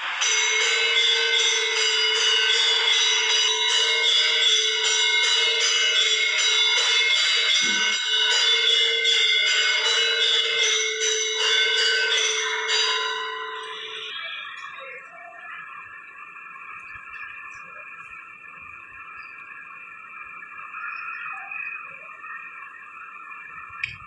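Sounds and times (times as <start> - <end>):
temple bells ringing: 0.0 - 22.7.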